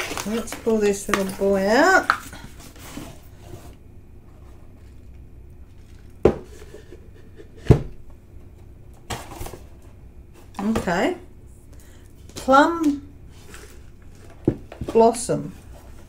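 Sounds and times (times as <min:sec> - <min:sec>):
handling noise: 0:00.0 - 0:03.6
cardboard knocking on table: 0:06.2 - 0:06.5.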